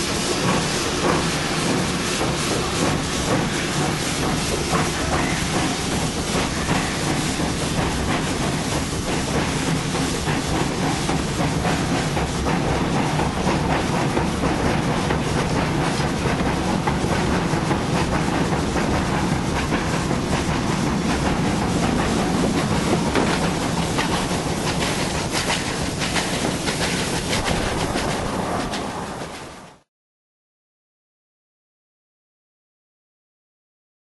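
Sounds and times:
steam train rumbling: 0.0 - 29.9
wheels clattering over rails: 12.6 - 29.5.

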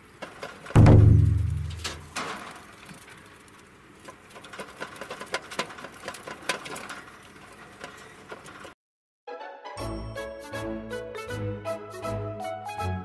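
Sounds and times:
exercise wheel knocking: 0.0 - 2.2
claws clicking on plastic wheel: 4.0 - 8.8
music: 9.3 - 13.0.

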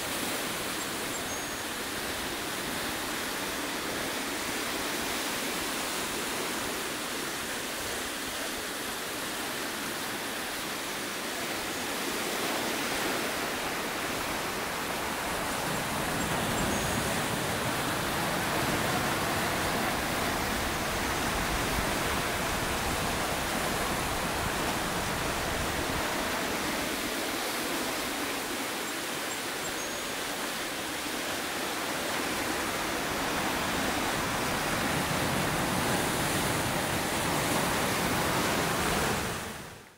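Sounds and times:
ocean surf on rocky shore: 0.0 - 39.9.

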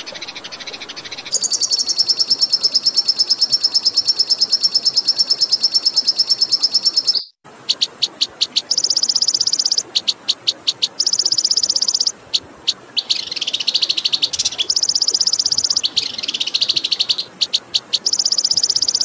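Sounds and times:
songbird fast trill: 0.0 - 19.0
bird chips: 5.9 - 19.0.

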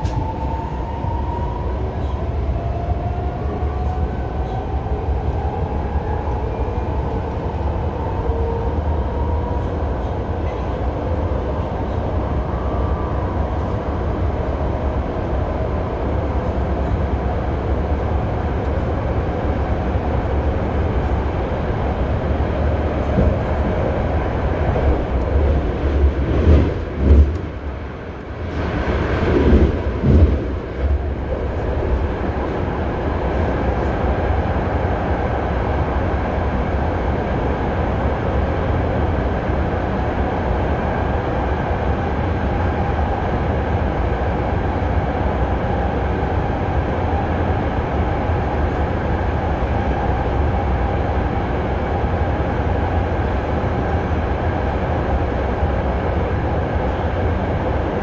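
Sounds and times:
train rumbling on track: 0.0 - 58.0
train knocks: 26.0 - 27.6, 29.3 - 31.0.

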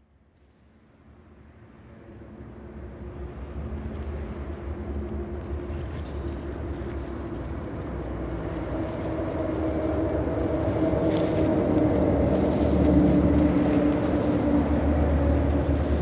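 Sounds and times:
steady multi-tone hum: 0.1 - 16.0
low steady rumble: 0.6 - 16.0.

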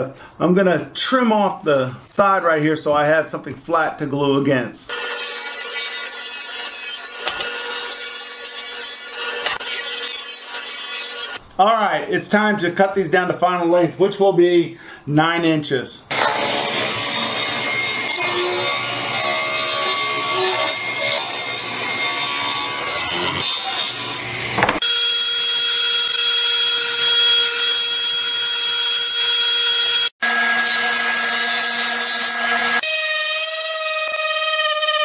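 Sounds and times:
table saw cutting boards: 4.9 - 11.4, 16.1 - 35.0
thickness planer whining: 4.9 - 11.4, 16.1 - 35.0.

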